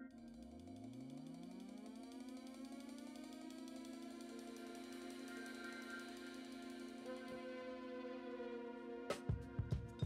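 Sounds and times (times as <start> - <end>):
drum beats: 9.1 - 10.0.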